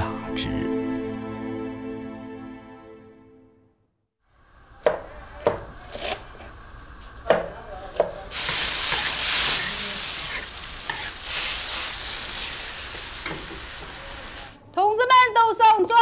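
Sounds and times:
cooking utensils clanking: 8.3 - 14.5
food sizzling in a hot wok: 8.3 - 14.6.

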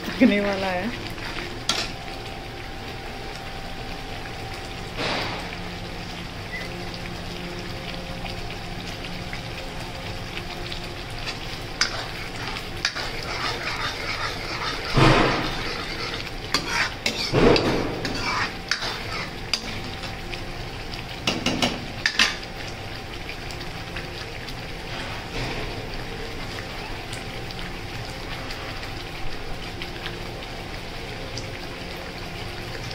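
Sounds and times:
paste sizzling: 9.1 - 22.8
metal spoon scraping pan: 11.2 - 19.9.

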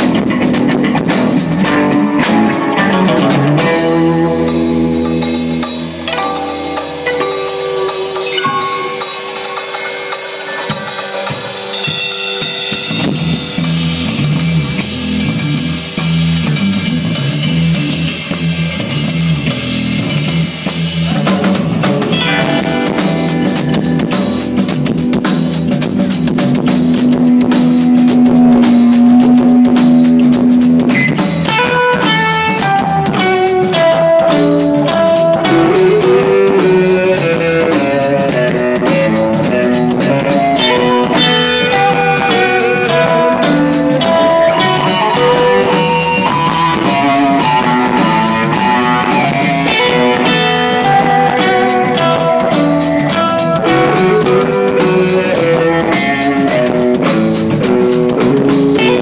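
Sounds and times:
electric guitar lead lines: 0.0 - 59.0
rock band playing: 0.0 - 59.0.

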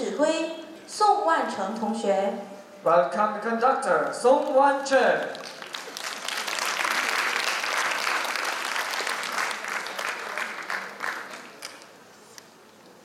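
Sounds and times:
audience applauding: 5.0 - 11.9.

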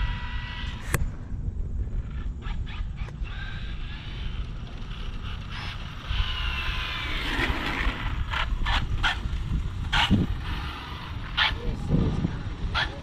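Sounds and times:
toy car motor whining: 0.0 - 1.0, 2.1 - 9.2, 9.8 - 12.1.

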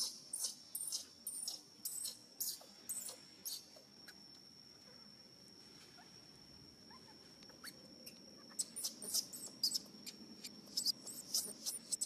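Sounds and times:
steady high-pitched whine: 0.0 - 12.0
baby monkey crying squeaks: 8.5 - 12.0.

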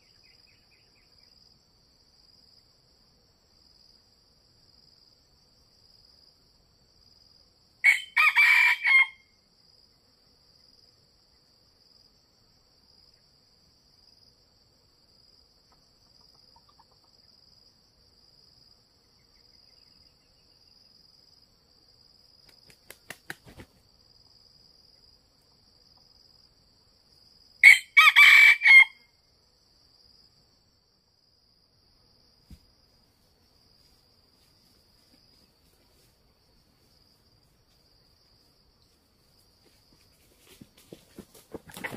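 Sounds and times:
faint high-pitched insect drone: 0.0 - 41.9
rooster crowing: 7.8 - 9.3, 27.6 - 29.1.

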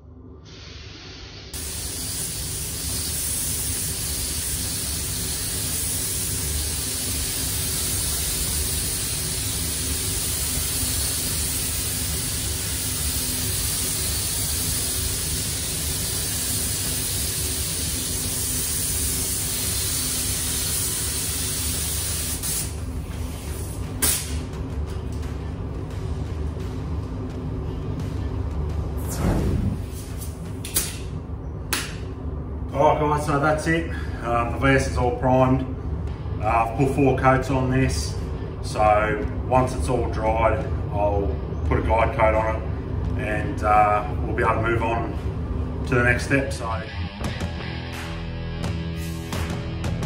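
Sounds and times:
steady low hum: 0.0 - 50.0
spray gun hissing: 0.4 - 24.4.

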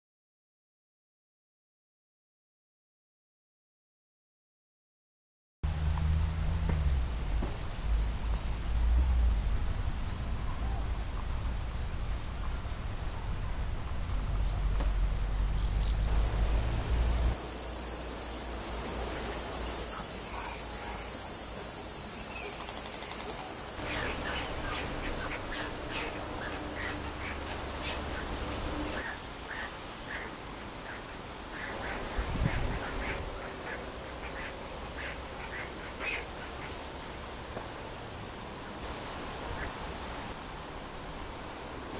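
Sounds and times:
low rumble: 5.6 - 17.4
high insect hum: 5.6 - 29.1
rapid repeated bird calls: 5.6 - 36.8
small birds chirping: 5.6 - 36.8.

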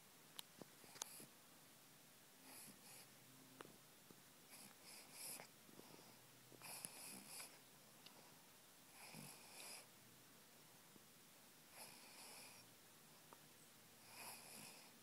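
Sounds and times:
dog breathing: 4.5 - 7.6, 8.2 - 9.9, 11.7 - 12.7, 14.0 - 15.0.

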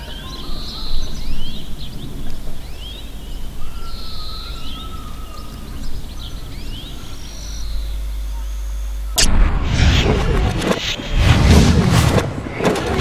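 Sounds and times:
small birds chirping: 0.0 - 9.2
steady low rumble: 7.6 - 13.0.

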